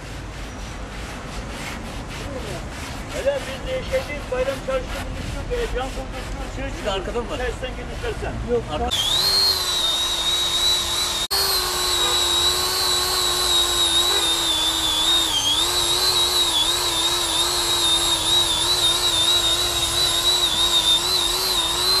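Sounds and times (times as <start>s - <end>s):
angle grinder grinding concrete: 8.8s - 22.0s.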